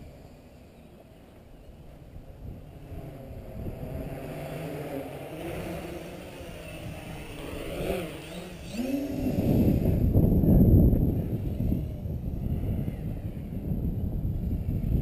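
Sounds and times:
drone motors and propellers whining: 0.0 - 15.0.

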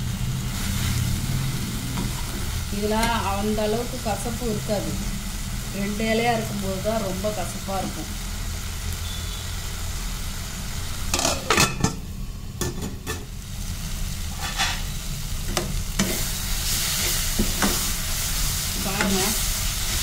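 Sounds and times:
greens sizzling in a pan: 0.0 - 20.0
spatula scraping a pan: 14.3 - 15.0.

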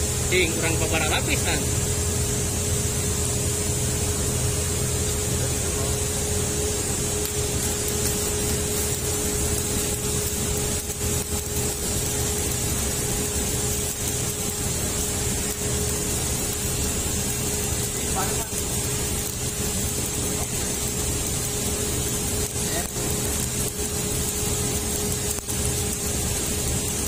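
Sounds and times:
steady hum: 0.0 - 27.0
welding arc sizzling: 0.0 - 27.0.

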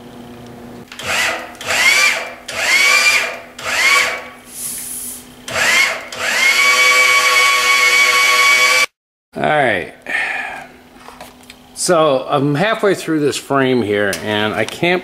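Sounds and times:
electric motor whining: 5.5 - 8.9.

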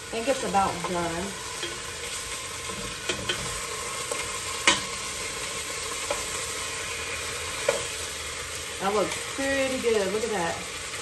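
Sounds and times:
chicken sizzling in hot fat: 0.0 - 11.0
metal utensil scraping a pot: 0.8 - 5.0.

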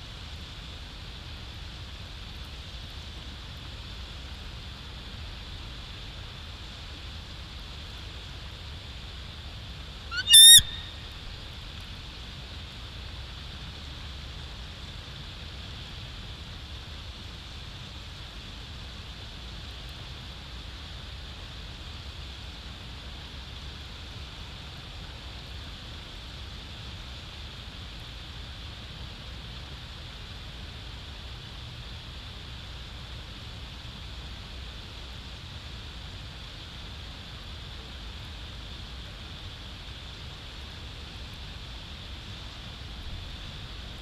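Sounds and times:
steady background hiss: 0.0 - 44.0
eagle chittering call: 10.1 - 11.1.

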